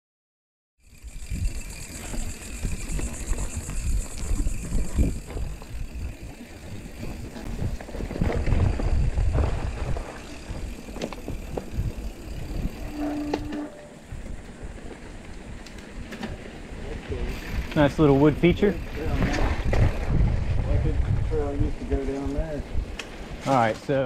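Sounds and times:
tyres rolling on dirt trail: 0.8s - 24.0s
wind buffeting microphone: 0.9s - 23.4s
bike rattles and knocks: 0.9s - 24.0s
brief steady squeal: 12.6s - 14.1s.

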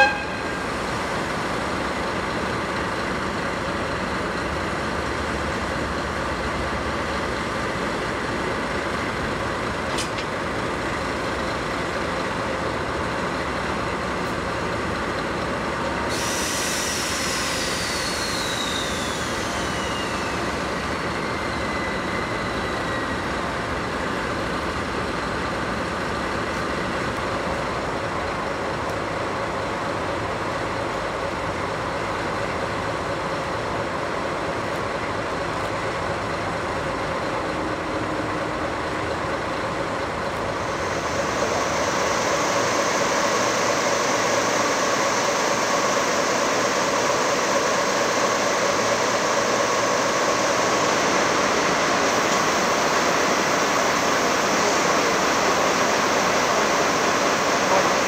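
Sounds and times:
diesel locomotive engine hum: 0.0s - 58.0s
hissy steady noise: 40.3s - 58.0s.

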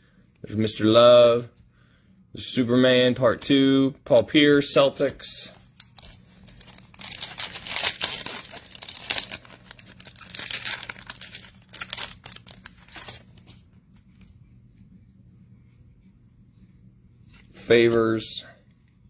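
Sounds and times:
foil wrapper torn and crinkled: 5.8s - 13.4s.

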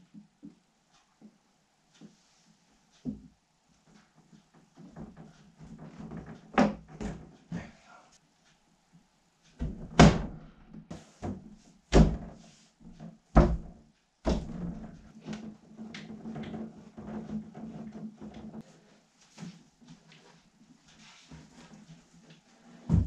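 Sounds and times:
loud knocks of wood: 13.3s - 14.8s.

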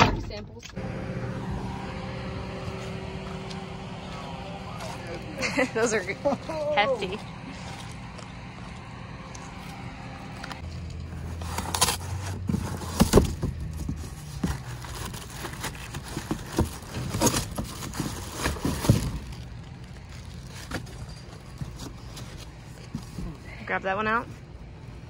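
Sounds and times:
cardboard flaps scraping and rustling: 11.1s - 23.4s.

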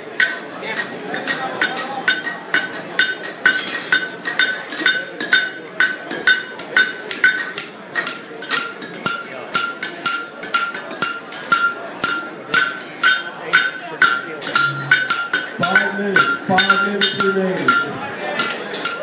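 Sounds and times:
murmur of voices: 0.0s - 19.0s
hammer ringing on anvil: 1.3s - 19.0s.

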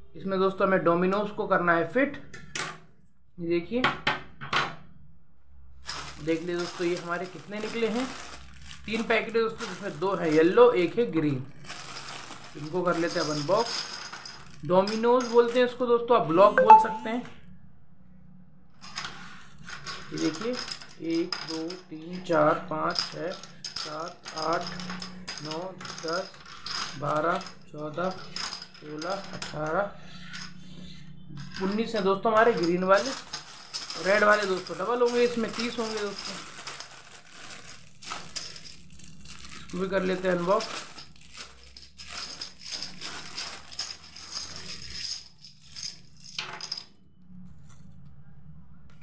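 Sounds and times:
plastic bag crinkling: 5.8s - 15.7s, 32.4s - 46.8s
plastic dominoes clattering on wood: 5.9s - 10.9s, 11.6s - 15.8s, 18.8s - 30.6s, 32.4s - 47.0s.

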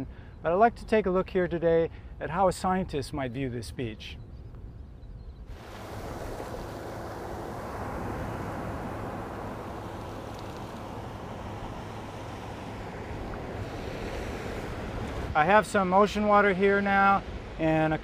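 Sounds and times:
ocean surf breaking: 5.5s - 18.0s.

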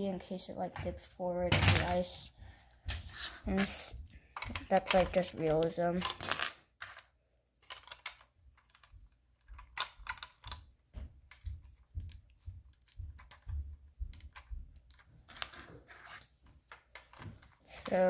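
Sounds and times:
plastic toy bricks clicking: 4.4s - 10.7s.

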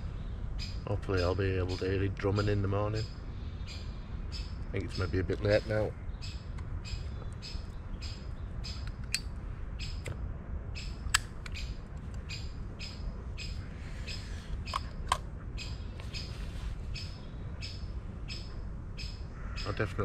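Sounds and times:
woodpecker calling: 0.0s - 10.1s, 10.7s - 20.0s
sharp clicks: 8.7s - 9.3s, 10.8s - 12.3s.

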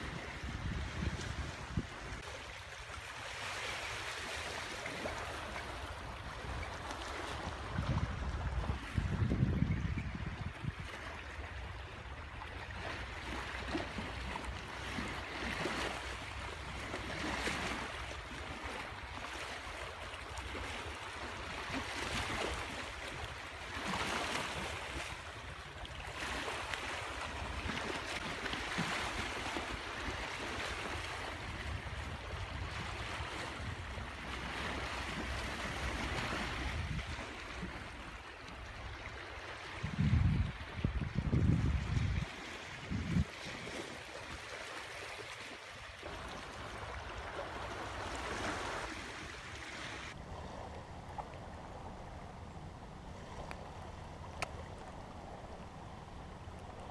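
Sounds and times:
wind buffeting microphone: 0.0s - 2.3s, 5.8s - 11.7s, 31.0s - 38.1s, 39.6s - 44.5s
light wind: 0.0s - 56.9s.

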